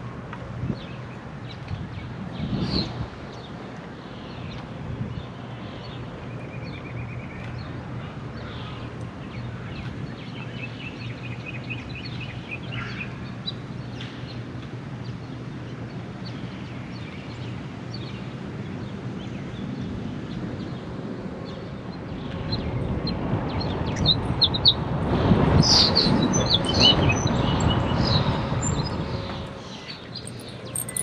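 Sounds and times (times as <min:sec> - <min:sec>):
wind and road rumble: 0:00.0 - 0:31.0
birds singing and chirping: 0:25.7 - 0:31.0.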